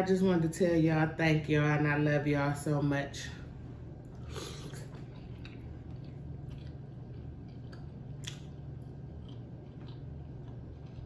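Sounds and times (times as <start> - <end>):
low hum: 0.0 - 11.0
chewing meat close-up: 4.0 - 11.0.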